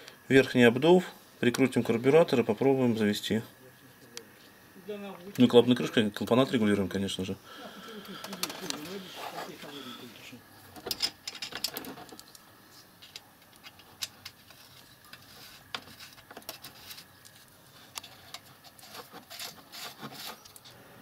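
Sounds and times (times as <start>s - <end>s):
light metal scraping: 8.0s - 20.8s.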